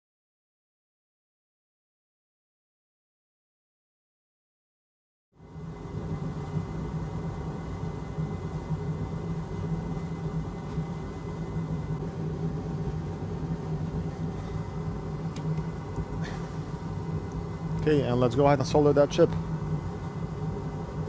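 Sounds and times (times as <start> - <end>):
fan motor drone with low hum: 5.4 - 21.0.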